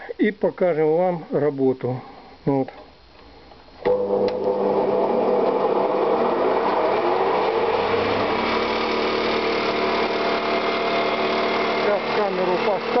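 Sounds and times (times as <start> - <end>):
electric chipper running: 3.8 - 13.0.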